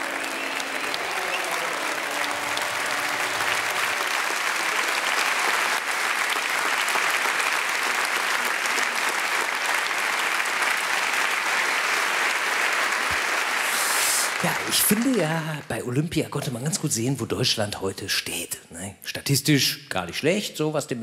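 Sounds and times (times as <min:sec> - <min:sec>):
large audience applauding: 0:00.0 - 0:16.1.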